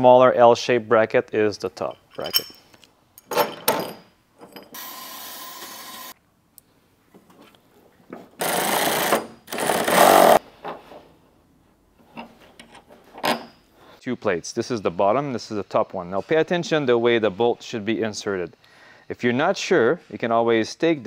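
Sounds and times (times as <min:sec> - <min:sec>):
cordless drill running: 0:04.8 - 0:06.1, 0:08.4 - 0:10.4.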